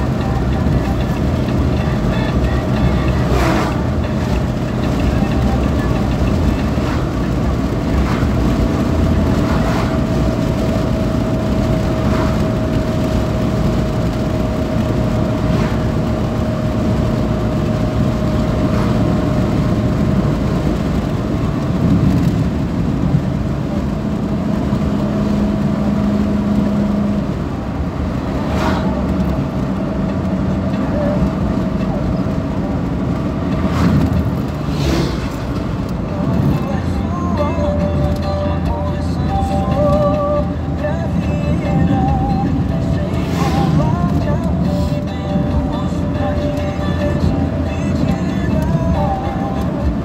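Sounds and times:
engine and tyre rumble: 0.0 - 50.0.

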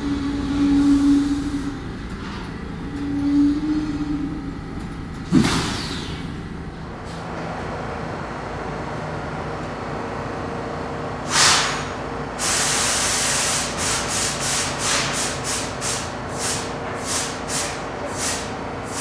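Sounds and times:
subway car equipment humming: 0.0 - 19.0
compressed air hissing: 11.3 - 19.0.

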